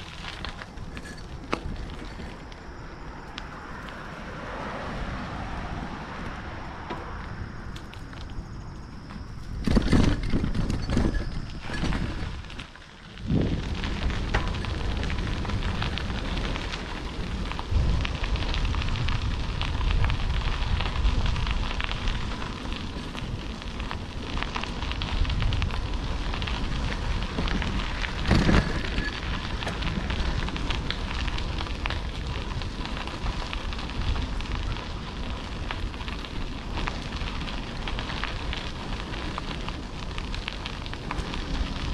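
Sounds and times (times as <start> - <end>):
bicycle jolts: 0.0 - 41.9
bicycle tyres crunching on gravel: 0.0 - 41.9
wind rumbling on microphone: 0.0 - 41.9.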